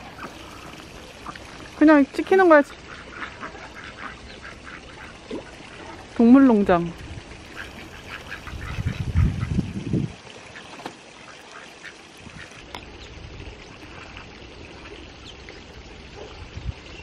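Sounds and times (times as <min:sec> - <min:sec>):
ducks quacking: 0:02.8 - 0:06.0, 0:07.5 - 0:09.6.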